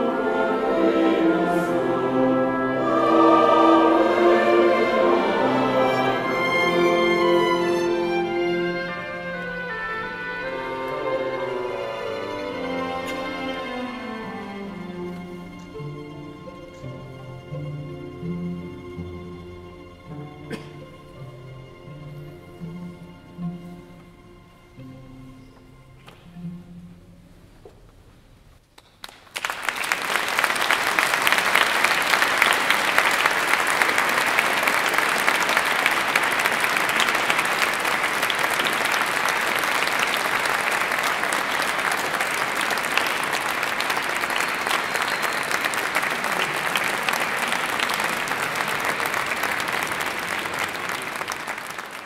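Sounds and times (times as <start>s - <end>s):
audience applauding: 28.8s - 52.0s.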